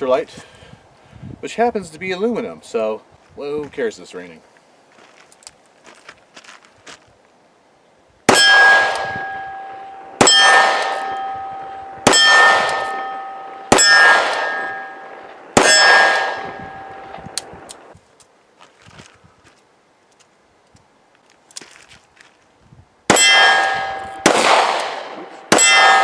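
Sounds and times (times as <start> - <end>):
steel target ringing: 8.3 - 17.3, 23.1 - 26.0.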